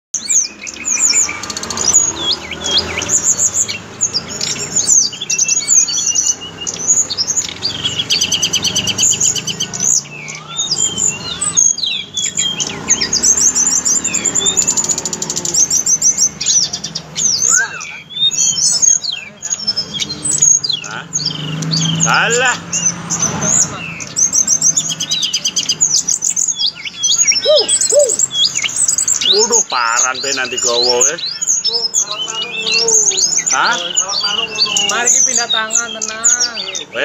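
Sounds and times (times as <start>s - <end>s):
bird singing whistles and trills: 0.2s - 37.0s.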